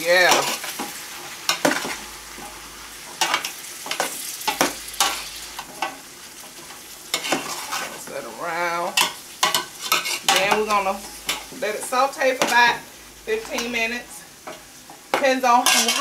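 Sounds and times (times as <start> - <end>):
green beans sizzling in pot: 0.0 - 16.0
utensil scraping pot: 1.5 - 8.1, 8.9 - 14.6.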